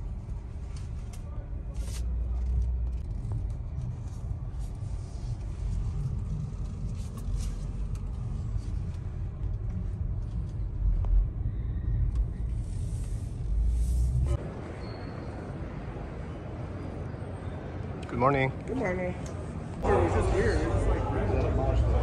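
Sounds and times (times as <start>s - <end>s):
road and tyre rumble in car cabin: 0.0s - 14.7s.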